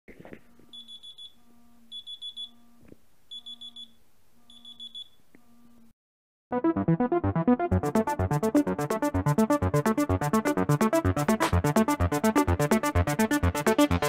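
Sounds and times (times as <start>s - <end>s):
electronic music: 6.5s - 14.0s.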